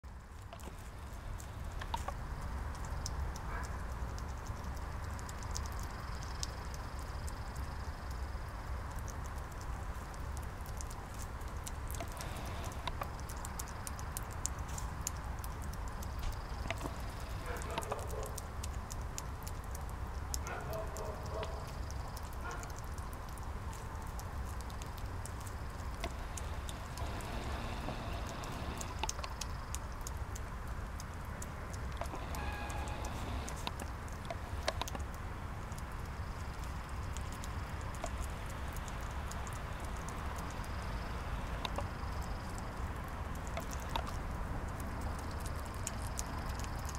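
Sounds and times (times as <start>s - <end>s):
hedgehog chewing wet food: 0.1s - 46.9s
low rumble: 25.3s - 30.3s.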